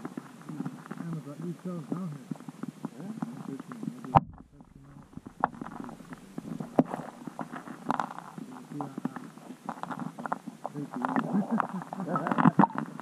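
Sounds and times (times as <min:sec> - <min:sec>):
muffled voices underwater: 0:00.1 - 0:13.0
low rumbling: 0:04.1 - 0:07.9.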